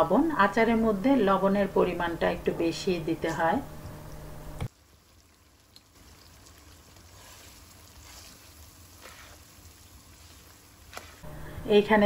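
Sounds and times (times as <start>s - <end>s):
food frying in oil: 4.7s - 12.0s
spatula scraping wok: 7.1s - 11.6s.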